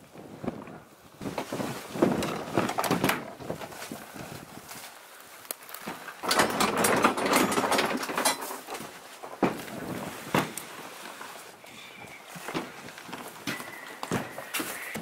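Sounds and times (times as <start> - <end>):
plastic decoys knocking and rustling: 0.4 - 15.0
footsteps on snowy stubble: 8.8 - 15.0.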